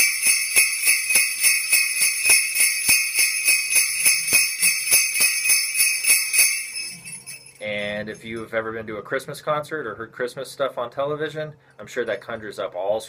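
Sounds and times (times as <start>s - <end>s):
sleigh bells jingling: 0.0s - 8.7s.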